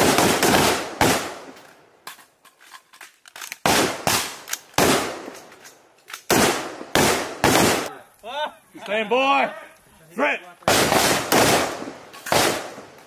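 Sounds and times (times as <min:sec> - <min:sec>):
rifle shots with echo: 0:00.0 - 0:01.6, 0:03.6 - 0:05.4, 0:06.3 - 0:07.9, 0:10.7 - 0:13.0.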